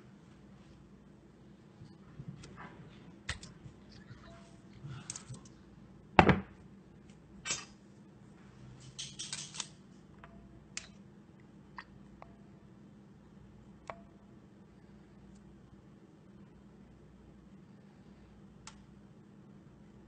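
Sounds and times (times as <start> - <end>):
metal tongs scraping and rattling: 8.8 - 9.7.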